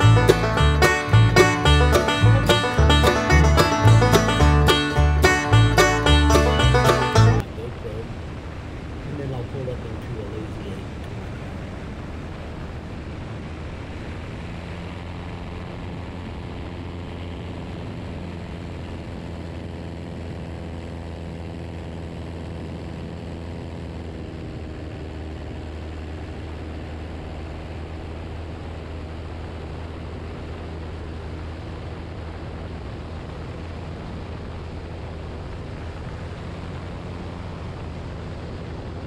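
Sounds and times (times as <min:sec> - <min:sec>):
propeller plane engine droning: 0:00.0 - 0:39.0.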